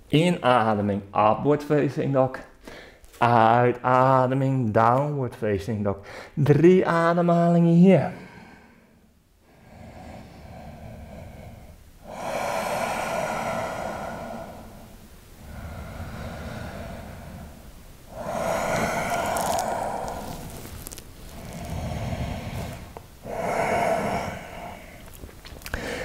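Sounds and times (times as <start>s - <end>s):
man breathing deeply: 2.6s - 3.1s, 6.0s - 6.4s, 8.1s - 26.0s.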